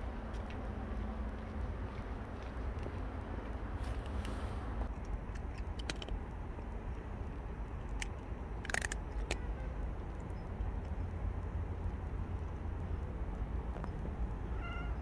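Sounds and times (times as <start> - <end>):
cat crunching dry food: 8.6 - 9.4.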